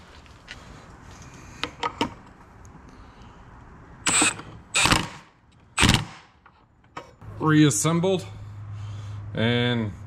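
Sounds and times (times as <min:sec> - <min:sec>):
cordless impact wrench bursts: 0:04.0 - 0:06.2.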